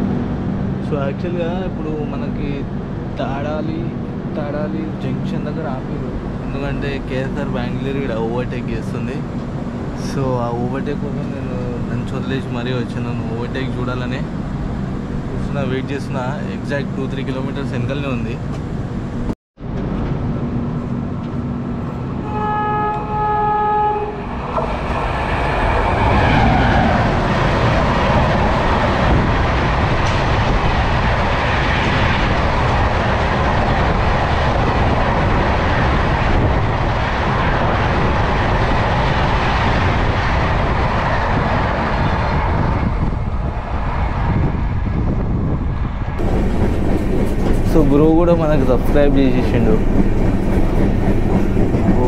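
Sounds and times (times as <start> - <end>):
train horn: 22.2 - 24.4
train wheels rumbling on rails: 24.0 - 52.0.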